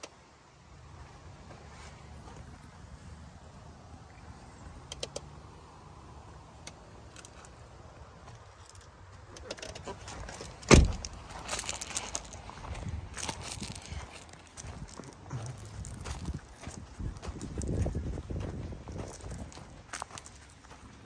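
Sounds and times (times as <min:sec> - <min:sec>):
footsteps on gravel: 0:09.9 - 0:21.0
car door slamming: 0:10.6 - 0:11.2.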